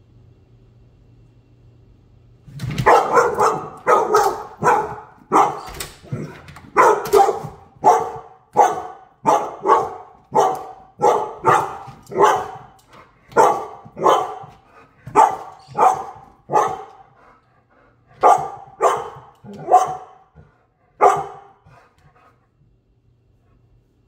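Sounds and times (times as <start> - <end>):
dog barking sharply: 2.7 - 14.5, 15.1 - 17.0, 18.2 - 20.3, 21.0 - 21.6.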